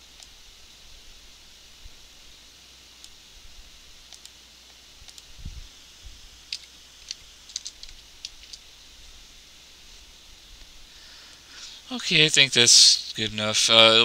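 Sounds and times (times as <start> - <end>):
faint hum and hiss: 0.0 - 14.0
keyboard and mouse clicks: 4.1 - 5.3, 6.5 - 8.6.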